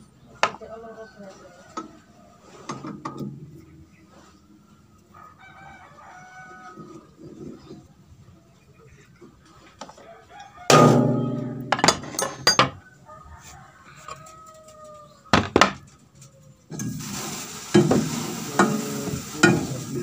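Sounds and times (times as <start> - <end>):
metal clanking and scraping: 2.5 - 4.5, 10.7 - 12.8
ringing metal clang: 10.7 - 12.8.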